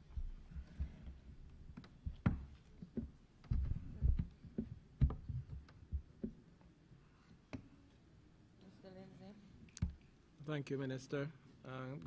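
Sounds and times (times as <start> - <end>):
microphone handling thumps and knocks: 0.0 - 6.4.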